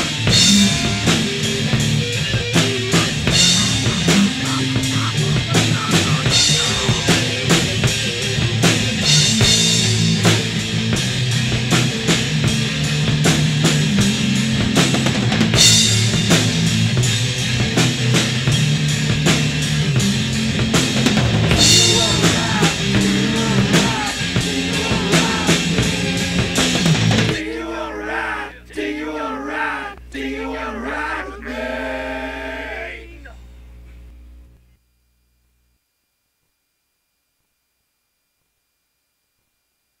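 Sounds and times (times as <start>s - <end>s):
drum kit music with bass line: 0.0s - 27.4s
wavering voice-like sound: 3.0s - 8.3s, 21.6s - 25.8s, 27.4s - 33.4s.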